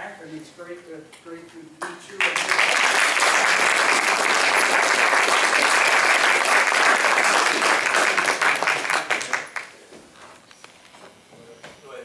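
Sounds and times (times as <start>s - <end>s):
audience applauding: 2.2s - 9.8s.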